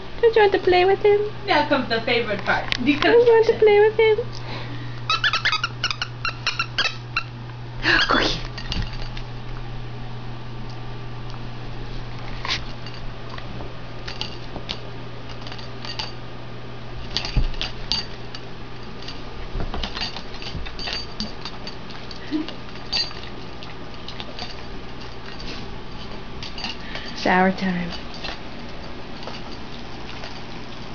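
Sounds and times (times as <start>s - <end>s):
steady low hum: 0.0s - 30.9s
light metallic clinks: 17.1s - 23.3s.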